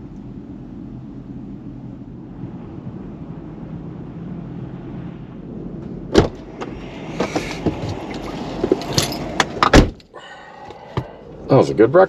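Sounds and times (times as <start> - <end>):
low rumble: 0.0 - 12.0
car door opening clack: 6.1 - 10.0.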